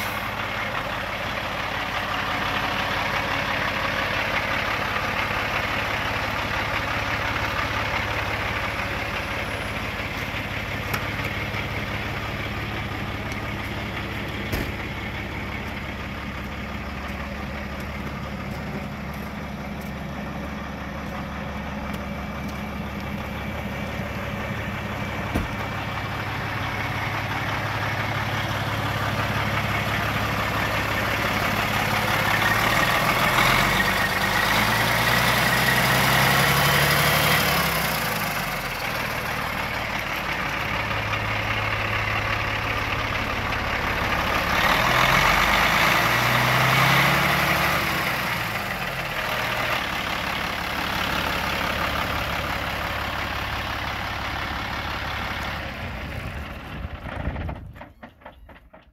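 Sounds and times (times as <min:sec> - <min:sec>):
diesel truck engine idling: 0:00.0 - 0:58.9.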